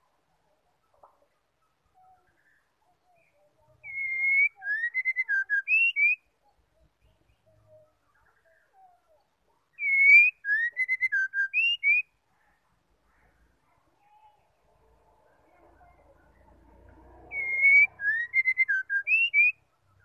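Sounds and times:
bird singing whistled phrase: 3.2 - 6.3, 9.8 - 12.1, 17.3 - 19.6.

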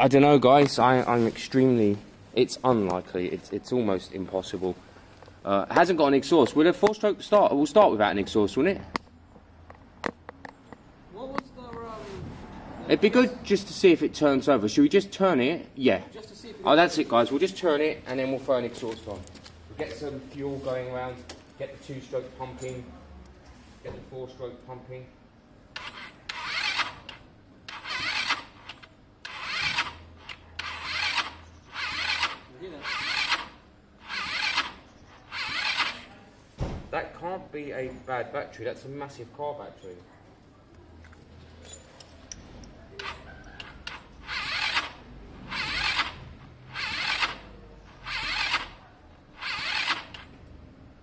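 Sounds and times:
starter motor whirring: 25.7 - 36.1, 42.9 - 50.5
scooter engine cranking: 25.7 - 36.2, 42.6 - 50.5.

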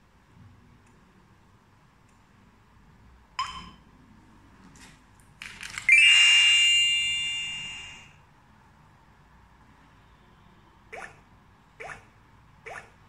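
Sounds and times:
loud ringing chime: 5.9 - 8.1.

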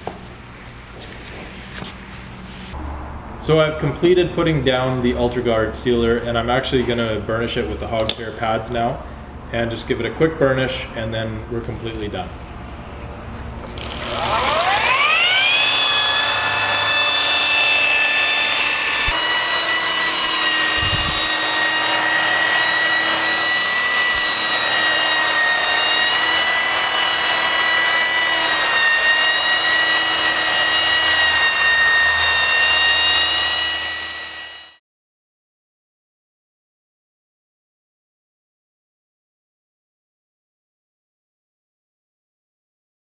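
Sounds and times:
concrete grinder whining: 13.7 - 34.8.

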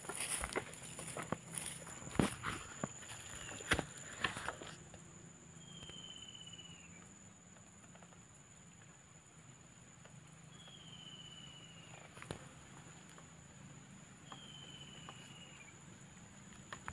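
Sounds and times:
high whistled animal call: 14.3 - 15.7.

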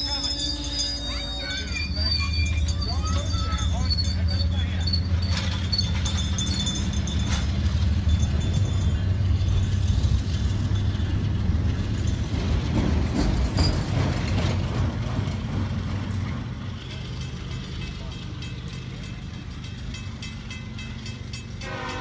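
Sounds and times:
metallic clanks and squeaks: 0.0 - 8.8, 13.2 - 14.6
freight train rumbling past: 0.0 - 22.0.

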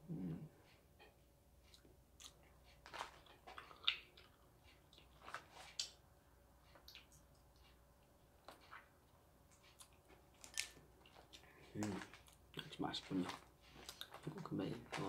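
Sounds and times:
biting and chewing candy: 1.7 - 6.0, 9.5 - 15.0.

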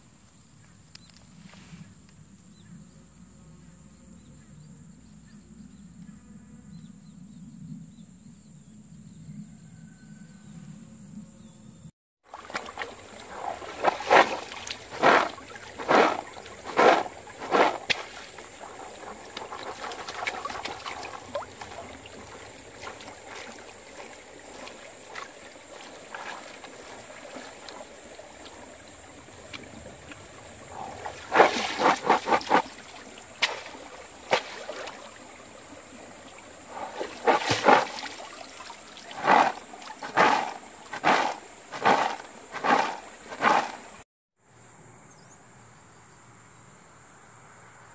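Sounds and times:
stream trickling: 12.2 - 44.0
water sloshing and splashing: 12.2 - 44.0.

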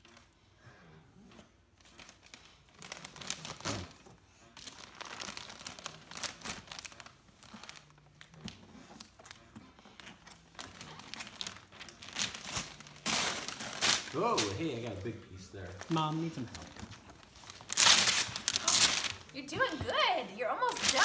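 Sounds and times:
wrapping paper tearing and crinkling: 1.8 - 21.0.

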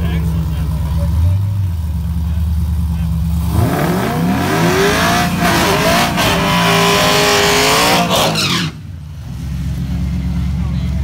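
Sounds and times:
car engine revving high: 3.4 - 8.8
tyres spinning and screeching: 3.5 - 9.0.

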